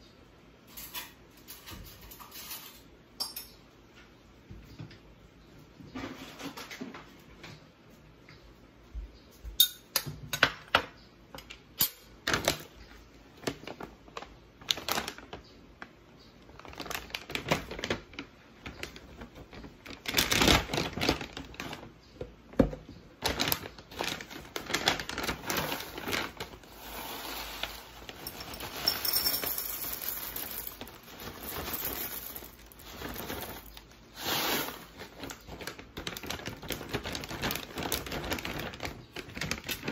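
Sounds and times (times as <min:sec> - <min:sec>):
plastic bag crinkling: 0:13.4 - 0:15.9, 0:16.5 - 0:21.9, 0:23.2 - 0:39.9
granola pouring into bowl: 0:25.3 - 0:35.5.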